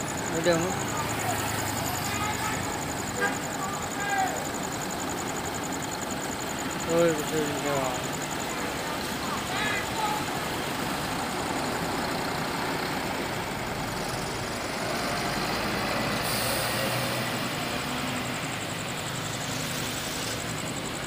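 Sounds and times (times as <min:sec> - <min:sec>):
bus engine running: 0:00.0 - 0:21.0
traffic noise: 0:00.0 - 0:21.0
brief hiss: 0:16.2 - 0:17.0.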